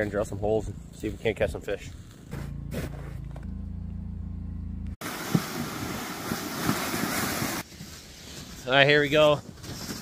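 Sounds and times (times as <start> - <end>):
low motor hum: 0.6 - 5.0.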